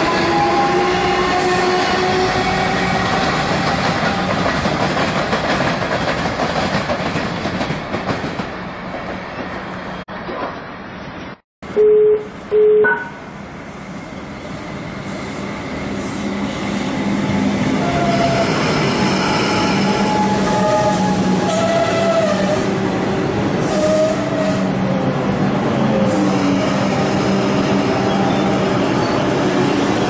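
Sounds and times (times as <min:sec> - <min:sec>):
electric train running past: 0:00.0 - 0:10.0, 0:13.2 - 0:30.0
train horn blasts: 0:19.2 - 0:22.7.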